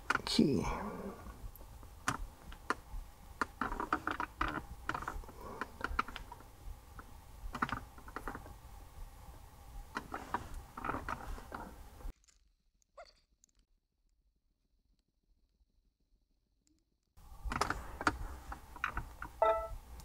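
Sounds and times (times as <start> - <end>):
faint steady hum: 0.0 - 12.1, 17.2 - 20.0.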